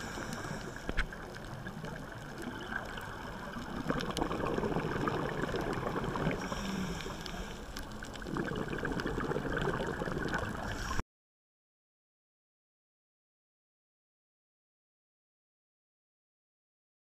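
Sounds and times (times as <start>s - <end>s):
faint clicks: 0.0s - 4.3s, 5.4s - 8.3s
underwater exhaled bubbles gurgling: 0.0s - 11.0s.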